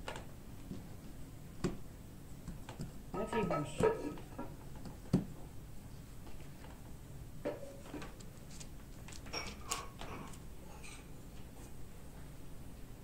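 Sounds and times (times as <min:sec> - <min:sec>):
dough thumping on baking paper: 0:01.6 - 0:05.4
paper rustling: 0:08.0 - 0:10.4.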